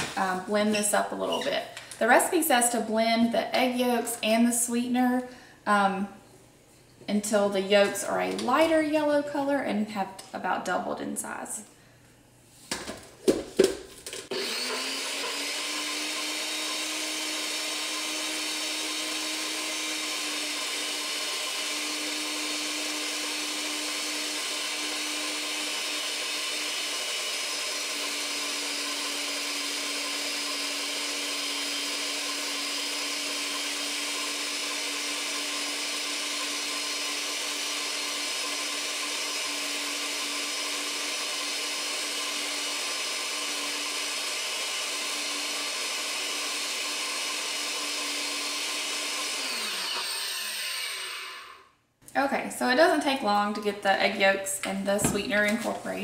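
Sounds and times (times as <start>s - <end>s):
blender motor humming: 14.1s - 51.8s.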